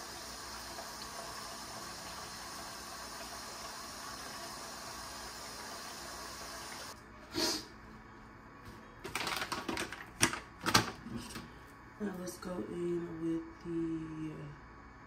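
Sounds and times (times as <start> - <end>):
sink tap running: 0.0 - 7.0.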